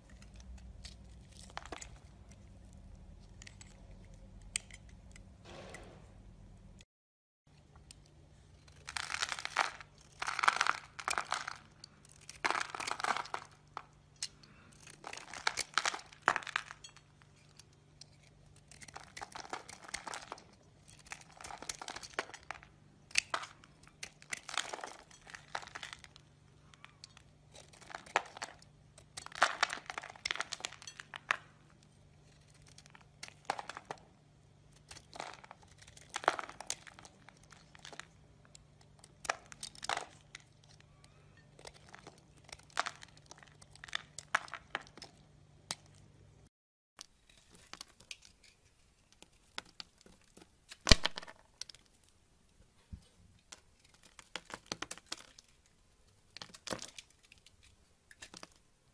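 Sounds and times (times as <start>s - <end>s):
knife scraping soap: 11.8s - 22.5s.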